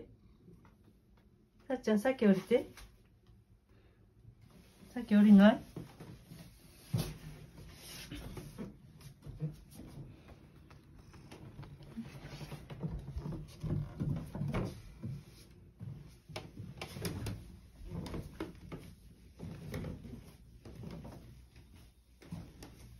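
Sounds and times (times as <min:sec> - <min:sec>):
footsteps on wooden stairs: 0:05.8 - 0:22.9.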